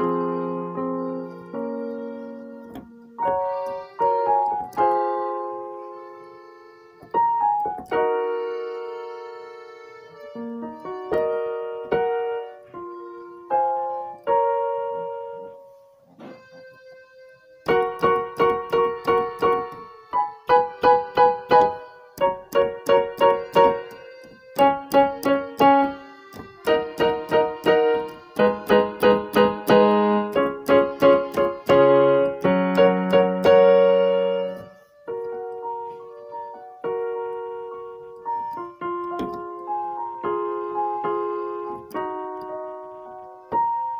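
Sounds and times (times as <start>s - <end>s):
piano music: 0.0s - 43.9s.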